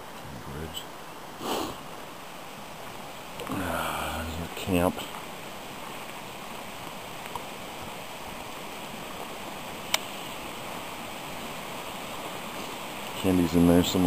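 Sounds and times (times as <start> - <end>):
river rushing: 0.0 - 14.0.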